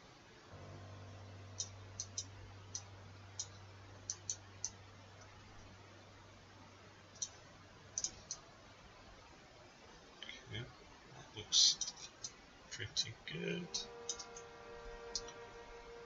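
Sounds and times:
faint low hum: 0:00.0 - 0:16.0
computer mouse clicking: 0:01.6 - 0:05.3, 0:07.1 - 0:07.4, 0:08.0 - 0:08.4, 0:14.1 - 0:14.5, 0:15.1 - 0:15.4.

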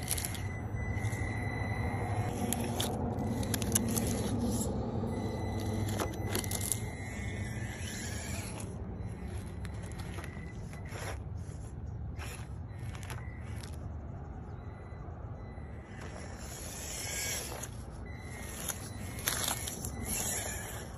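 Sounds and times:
electric motor whine: 0:00.0 - 0:13.8, 0:15.4 - 0:20.9
low steady hum: 0:00.0 - 0:20.9
tyres crackling on leaves: 0:01.8 - 0:14.3.

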